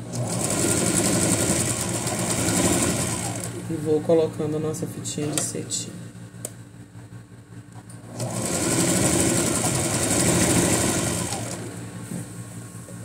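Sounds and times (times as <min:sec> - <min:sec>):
electric sewing machine stitching: 0:00.0 - 0:03.6, 0:08.0 - 0:11.8.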